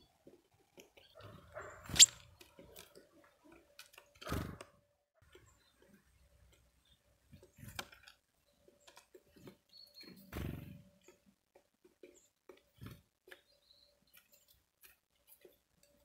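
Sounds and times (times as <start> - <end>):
bird wing flutters: 1.9 - 2.2.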